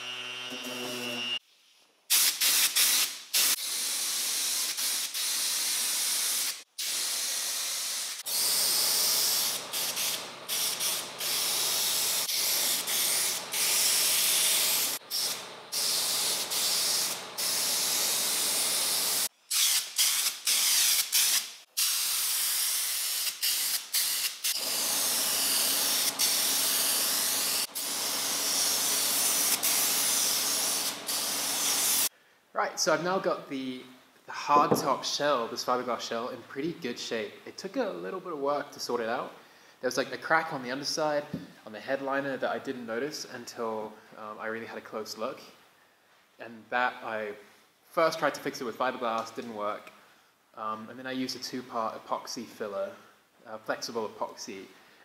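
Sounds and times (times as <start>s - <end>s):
paint spray gun hissing: 2.1s - 32.1s.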